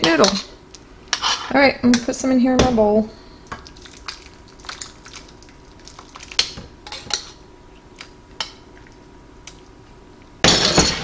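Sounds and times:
metal spoon scraping a saucepan: 0:01.1 - 0:01.6.

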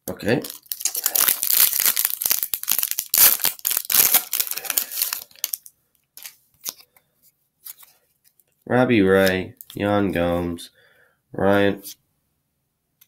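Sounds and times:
foil wrapper crinkling: 0:00.4 - 0:06.9.

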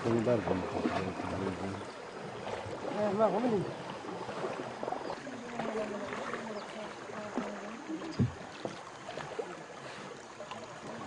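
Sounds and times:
water wash from boat: 0:00.0 - 0:11.0.

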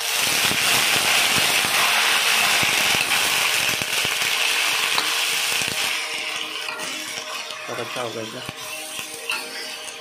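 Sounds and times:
chicken sizzling in hot oil: 0:00.0 - 0:10.0
metal spatula scraping a wok: 0:04.4 - 0:10.0.

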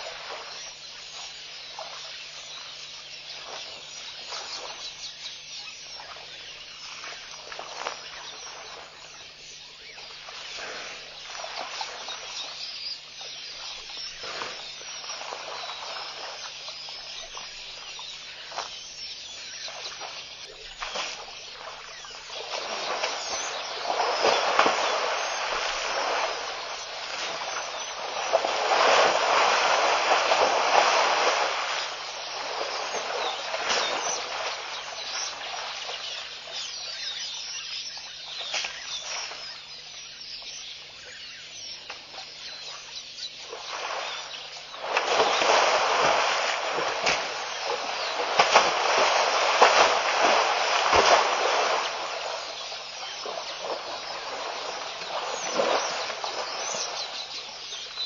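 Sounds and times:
elephant splashing in mud: 0:19.9 - 0:36.5, 0:43.5 - 0:58.0.

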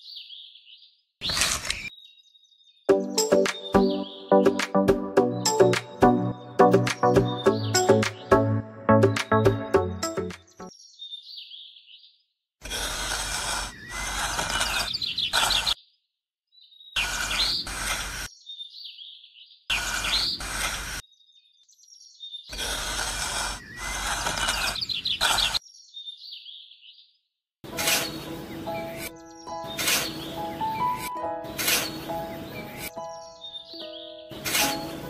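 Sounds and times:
bird chirps: 0:00.0 - 0:12.3, 0:13.6 - 0:20.4, 0:23.5 - 0:27.2, 0:27.9 - 0:35.0
hand trowel scraping sand: 0:12.6 - 0:15.8, 0:17.0 - 0:18.3, 0:19.7 - 0:21.0, 0:22.5 - 0:25.6, 0:27.7 - 0:33.0, 0:34.3 - 0:35.0.

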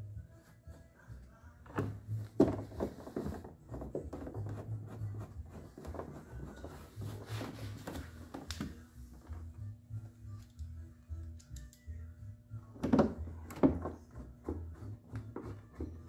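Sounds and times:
plastic scraping and rubbing: 0:01.7 - 0:08.8.

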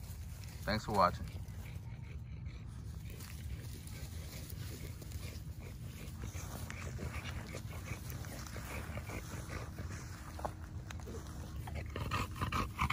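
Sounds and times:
dogs breathy noises: 0:00.0 - 0:12.9
steady low rumble: 0:00.0 - 0:12.9.

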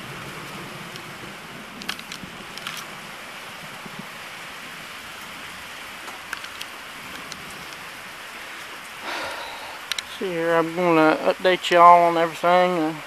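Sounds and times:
raindrops ticking close by: 0:00.0 - 0:13.0
steady rain falling: 0:00.0 - 0:13.0.

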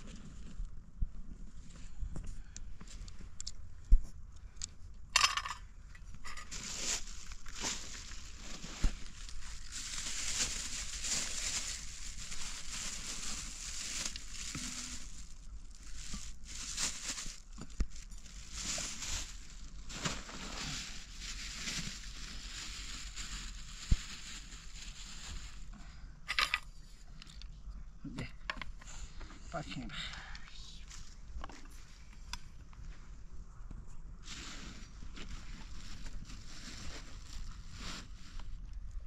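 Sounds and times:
crunching and scraping: 0:02.8 - 0:25.7, 0:34.2 - 0:39.0.

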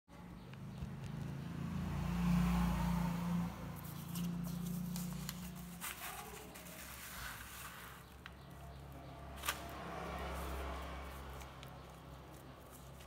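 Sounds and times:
paper sheet clicks and rustles: 0:03.8 - 0:08.4.

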